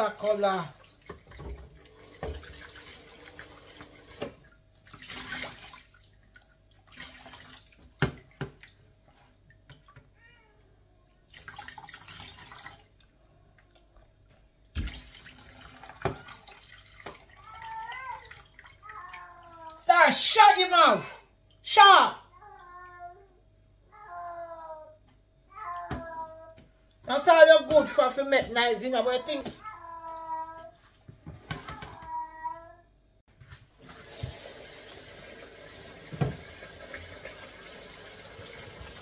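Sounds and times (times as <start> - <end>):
tap running into sink: 1.1 - 2.7, 33.8 - 39.0.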